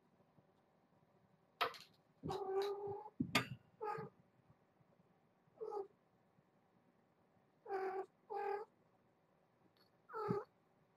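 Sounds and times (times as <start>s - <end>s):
cat meowing: 10.1s - 10.5s.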